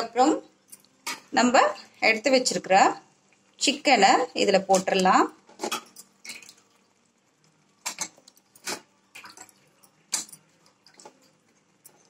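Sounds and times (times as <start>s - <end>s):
metal spoon scraping a metal pan: 5.6s - 6.1s.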